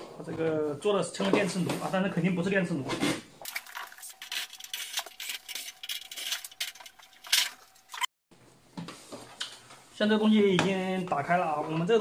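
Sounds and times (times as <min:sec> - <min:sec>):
scraping and rubbing on metal: 0:03.8 - 0:08.1.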